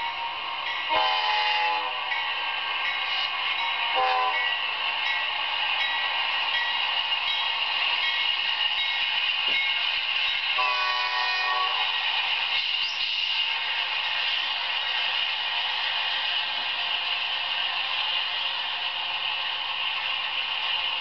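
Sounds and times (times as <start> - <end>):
crossing bell ringing: 0.0 - 11.9
approaching train noise: 0.0 - 21.0
locomotive air horn: 0.9 - 2.1, 4.0 - 4.4, 10.6 - 11.9.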